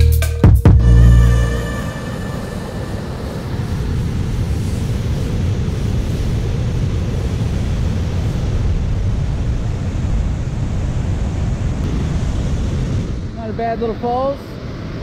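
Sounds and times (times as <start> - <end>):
wind buffeting microphone: 1.8 - 13.4.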